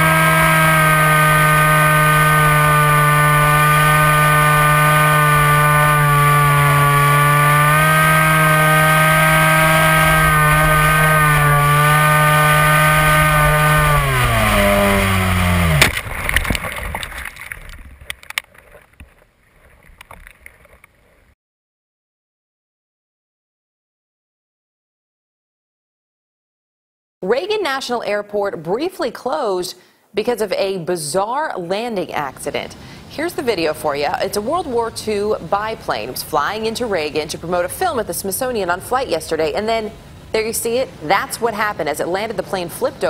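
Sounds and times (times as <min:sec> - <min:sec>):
model plane motor whining: 0:00.0 - 0:16.6
plane hitting a tree crack: 0:00.0 - 0:18.4
branches snapping and rustling: 0:01.5 - 0:21.0.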